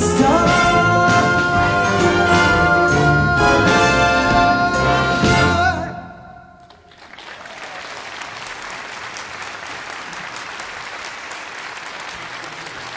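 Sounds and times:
audience applauding: 6.6s - 12.9s.

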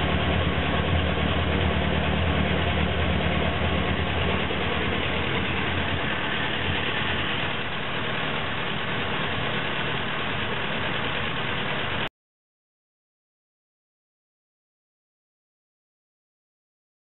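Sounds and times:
tractor engine idling: 0.0s - 12.1s.

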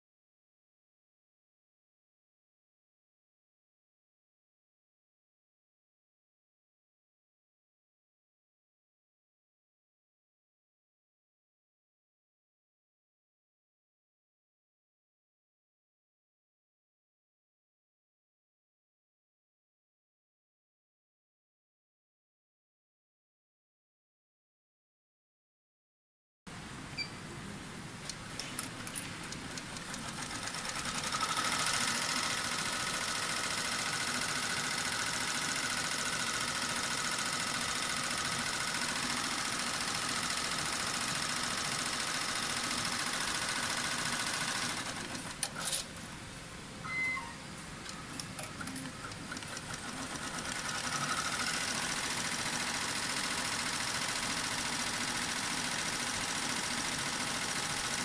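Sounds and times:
machine clicks: 28.0s - 31.1s
embroidery machine stitching: 28.1s - 45.9s, 48.1s - 58.0s.

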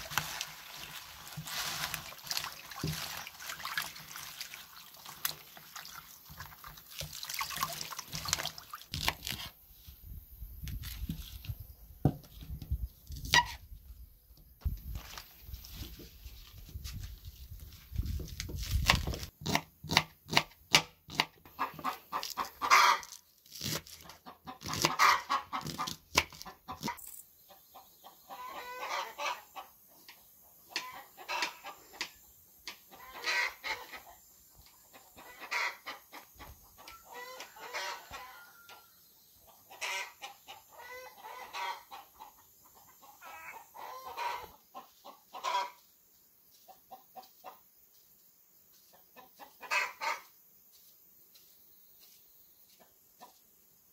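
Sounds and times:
chickens clucking: 21.4s - 23.1s, 24.1s - 38.8s, 39.4s - 45.9s, 46.6s - 47.7s, 48.9s - 50.3s.

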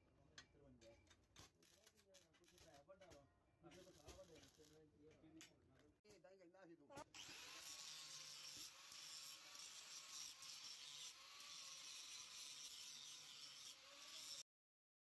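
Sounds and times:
angle grinder grinding steel: 7.2s - 14.4s.

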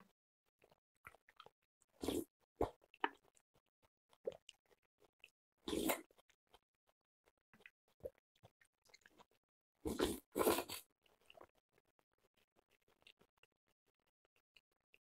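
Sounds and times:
wet chewing and mouth smacks: 0.6s - 14.9s
slurping noodles and broth: 1.9s - 3.2s, 5.7s - 6.2s, 9.8s - 11.5s.

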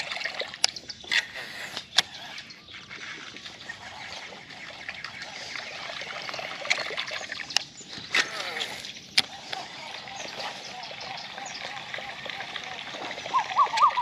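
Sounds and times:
water trickling and splashing: 0.0s - 14.0s.

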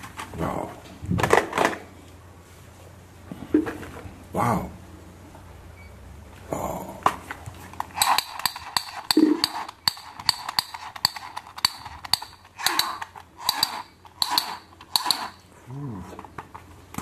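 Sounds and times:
plastic toy pistol clicking: 8.0s - 15.4s.

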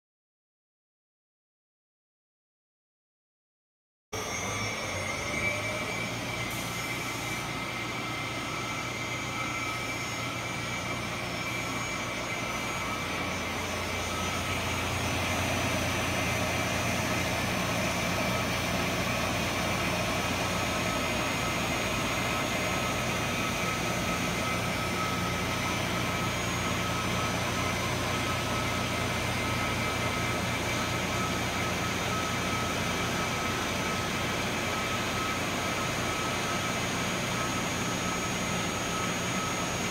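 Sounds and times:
wire saw machine whine: 4.2s - 39.9s
low hum: 4.3s - 34.3s.

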